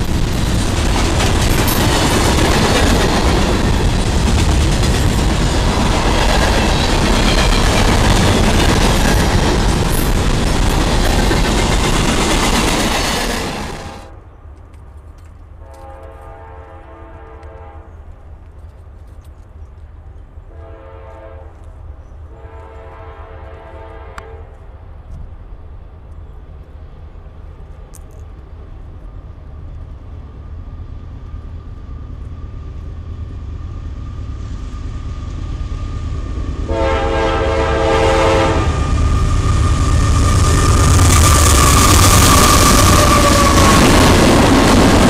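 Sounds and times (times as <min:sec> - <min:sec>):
diesel locomotive rumble: 0:00.0 - 0:45.0
train horn blasts: 0:15.6 - 0:18.1, 0:20.5 - 0:21.7, 0:22.3 - 0:24.7, 0:36.6 - 0:39.0.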